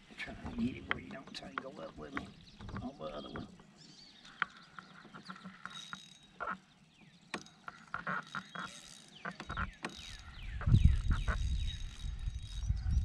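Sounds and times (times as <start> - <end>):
fishing reel clicking and ratcheting: 5.6 - 6.6, 7.3 - 13.0.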